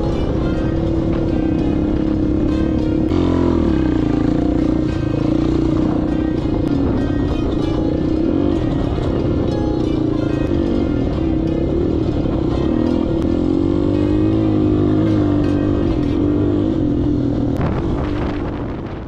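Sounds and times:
off-road motorcycle engine revving: 0:00.0 - 0:19.0.

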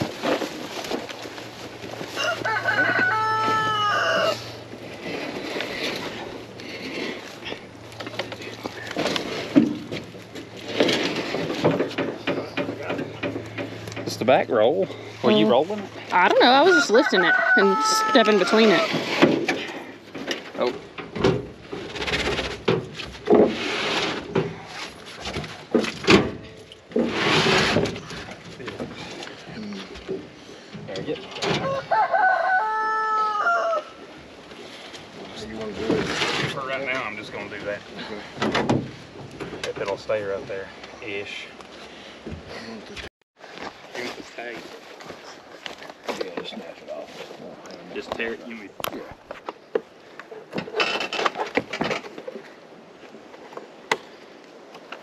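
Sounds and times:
dry vines rustling: 0:00.0 - 0:55.0
rooster crowing: 0:02.1 - 0:04.6, 0:16.5 - 0:18.9, 0:31.6 - 0:34.1
scraping on metal: 0:02.2 - 0:15.2, 0:17.6 - 0:29.2, 0:35.4 - 0:37.6.

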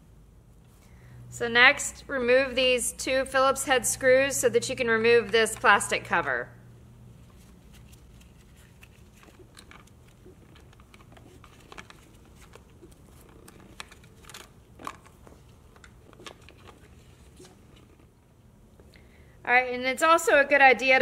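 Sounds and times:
plastic cover being handled: 0:07.2 - 0:18.2.

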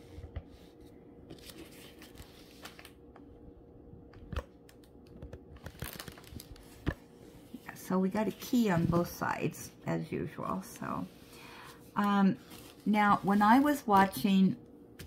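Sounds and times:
plastic film crinkling: 0:04.8 - 0:07.0.

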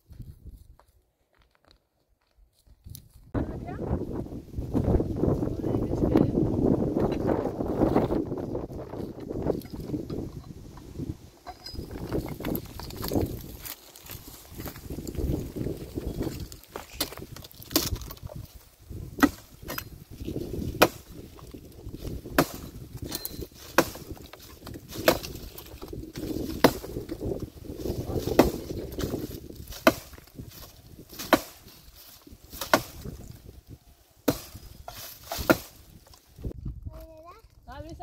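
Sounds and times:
leaves rustling: 0:03.4 - 0:36.6
axe chopping tree branch: 0:16.3 - 0:18.5, 0:19.1 - 0:27.4, 0:28.2 - 0:33.4, 0:34.2 - 0:36.0.

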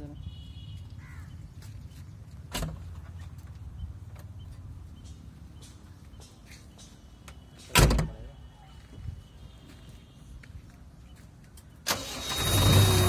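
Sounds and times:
door slamming shut: 0:07.7 - 0:08.2.

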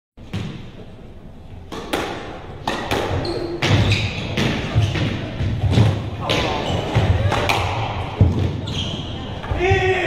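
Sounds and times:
shoe squeak on wooden floor: 0:03.1 - 0:05.0, 0:06.4 - 0:07.1, 0:08.6 - 0:09.3.

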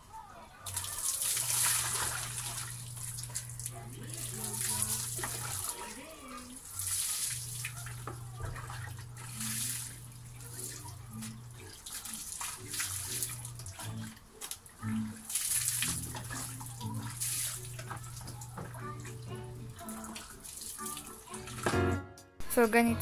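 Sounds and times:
water poured splashing: 0:00.7 - 0:21.8.

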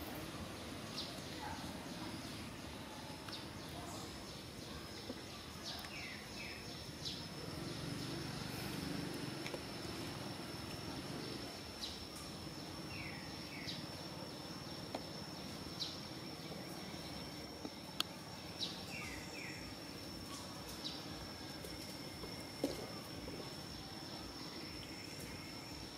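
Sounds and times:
high-pitched insect drone: 0:06.2 - 0:25.9.

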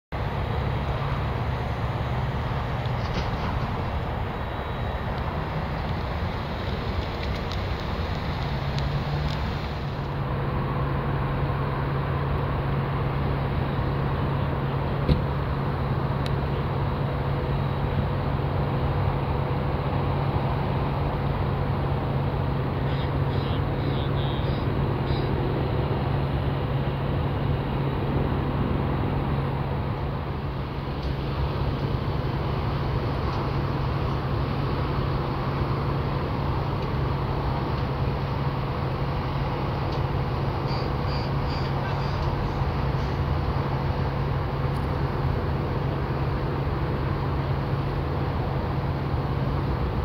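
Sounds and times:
engine rumble: 0:00.1 - 0:50.0.

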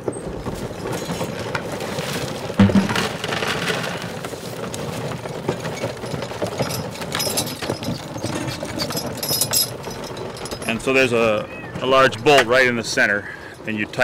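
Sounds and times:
burr mill crackling grinding corn: 0:00.6 - 0:09.2
heavy knocks: 0:02.6 - 0:03.2.

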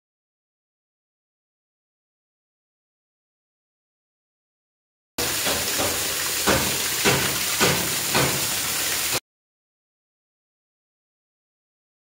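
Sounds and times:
water jet gushing and splashing: 0:05.2 - 0:09.2.

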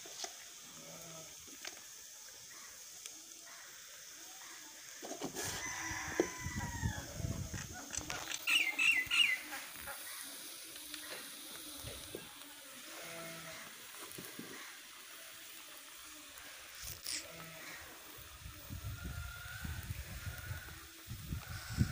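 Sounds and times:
chickens calling: 0:05.0 - 0:12.2.

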